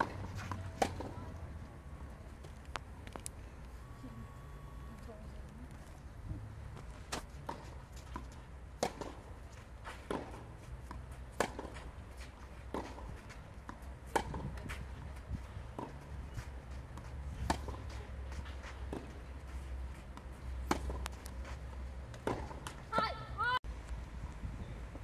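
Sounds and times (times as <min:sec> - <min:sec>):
racket hitting tennis ball: 0:00.0 - 0:01.2, 0:07.1 - 0:09.3, 0:09.9 - 0:12.0, 0:12.7 - 0:14.8, 0:17.0 - 0:18.0, 0:20.2 - 0:21.4, 0:22.1 - 0:23.2
tennis ball bouncing: 0:00.0 - 0:01.3, 0:07.1 - 0:09.3, 0:09.9 - 0:12.0, 0:12.7 - 0:15.0, 0:16.9 - 0:18.0, 0:20.2 - 0:23.2.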